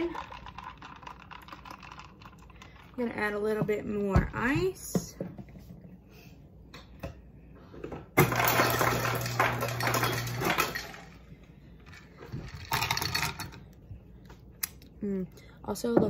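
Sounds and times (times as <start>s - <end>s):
ice clattering into a cup: 0.0s - 2.7s, 8.2s - 11.2s, 12.4s - 13.6s
ice dispenser motor hum: 8.2s - 11.2s.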